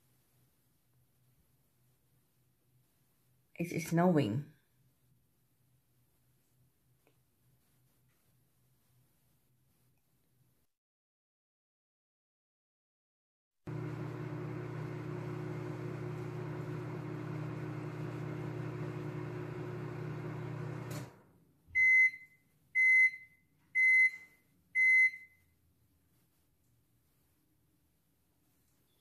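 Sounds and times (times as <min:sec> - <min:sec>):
microwave oven humming: 0:13.7 - 0:21.4.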